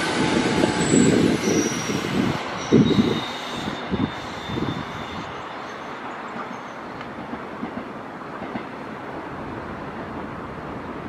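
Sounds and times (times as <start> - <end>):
electric train rolling: 0.0 - 10.8.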